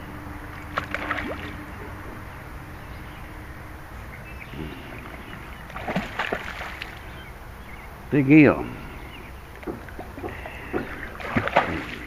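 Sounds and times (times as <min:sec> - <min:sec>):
eel splashing in water: 0:00.4 - 0:02.0, 0:04.7 - 0:07.4, 0:09.5 - 0:12.0.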